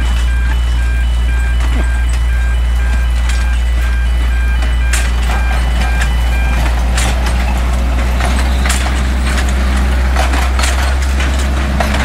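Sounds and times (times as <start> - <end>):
beeping tone tune: 0.0 - 10.3
locomotive low rumble: 0.0 - 12.0
train wheels clacking: 4.6 - 12.0.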